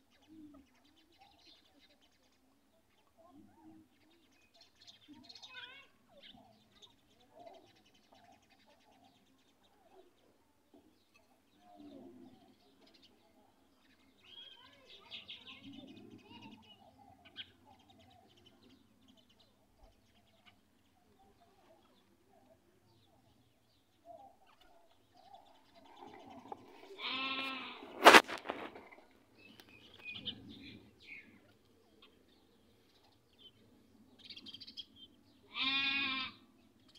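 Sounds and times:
quiet animal calls: 0:15.4 - 0:28.0, 0:35.4 - 0:36.6
drawn-out pitched animal call: 0:26.9 - 0:27.9, 0:35.5 - 0:36.4.

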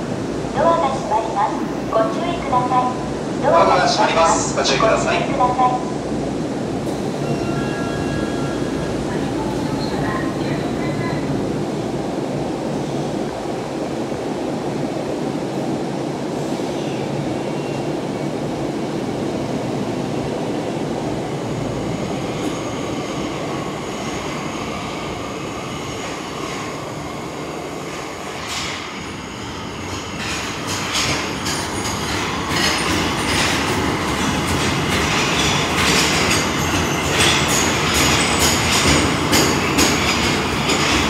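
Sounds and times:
subway train rumbling in tunnel: 0:00.0 - 0:41.0
train wheels clicking and squealing: 0:28.4 - 0:41.0.

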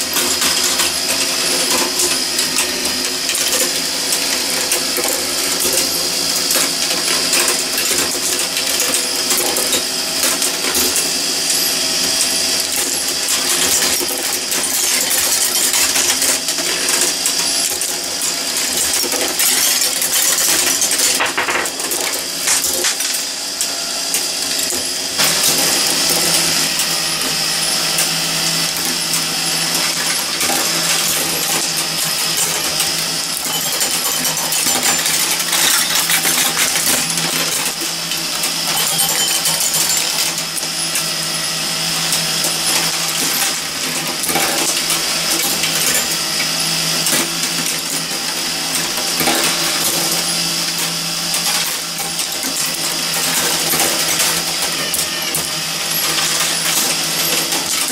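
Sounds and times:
metal gears clicking and clinking: 0:00.0 - 0:24.2, 0:29.6 - 0:41.1
glass marbles rattling: 0:19.4 - 0:23.2, 0:33.4 - 0:37.8, 0:38.6 - 0:40.4.

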